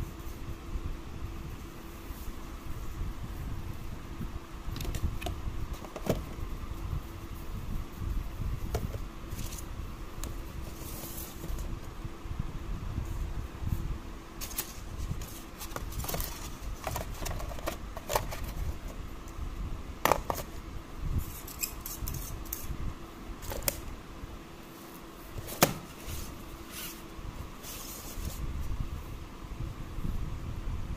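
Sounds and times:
faint steady hum: 0.0 - 30.9
cardboard rustling and scraping: 4.7 - 6.5, 7.2 - 12.0, 13.0 - 19.1, 24.7 - 28.8.

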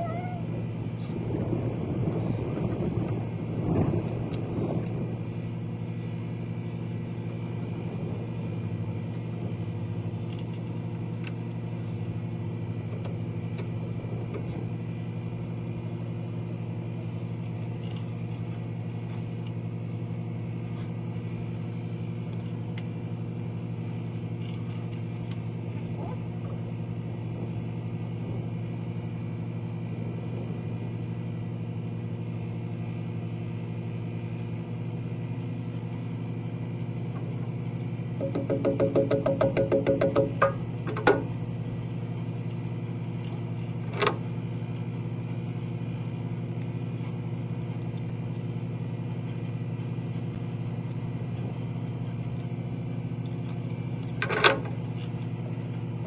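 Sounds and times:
engine droning steadily: 0.0 - 56.0.

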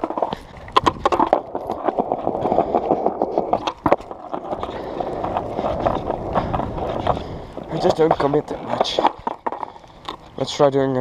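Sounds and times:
skateboard rolling on bricks: 0.0 - 11.0
skateboard wheels clacking: 0.0 - 11.0.

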